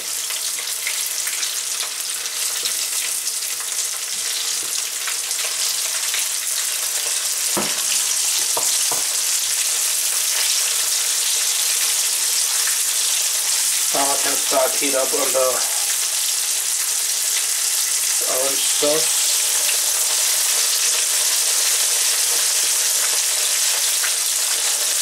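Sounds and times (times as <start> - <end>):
chicken deep-frying in oil: 0.0 - 25.0
spatula knocking against pan: 7.6 - 7.9, 8.5 - 9.1.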